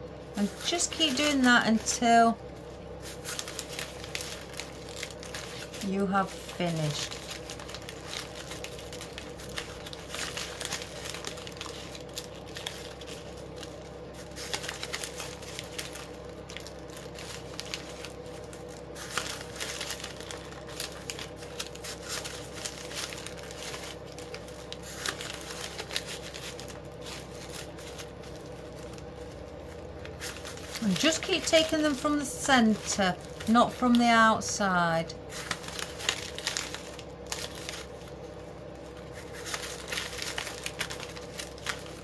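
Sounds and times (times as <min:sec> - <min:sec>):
faint hum: 0:00.0 - 0:42.0
plastic ribbon crinkling: 0:00.3 - 0:42.0.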